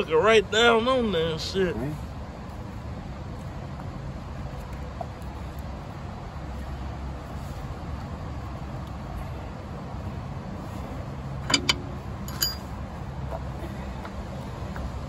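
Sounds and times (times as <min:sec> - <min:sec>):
metal parts clinking: 0:11.4 - 0:12.7.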